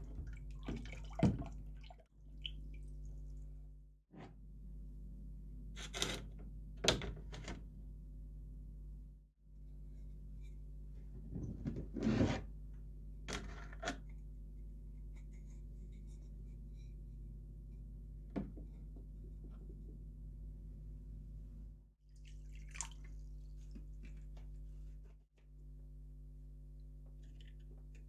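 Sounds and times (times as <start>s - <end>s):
splashes and drips in water: 0.0s - 3.5s, 22.1s - 24.2s.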